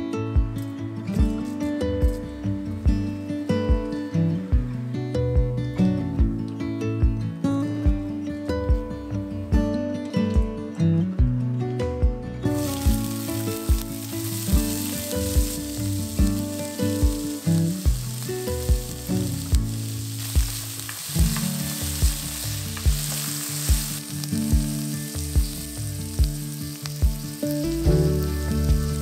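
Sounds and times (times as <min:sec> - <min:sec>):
soft background music with beat: 0:00.0 - 0:29.0
shallots sizzling in hot oil: 0:12.4 - 0:29.0.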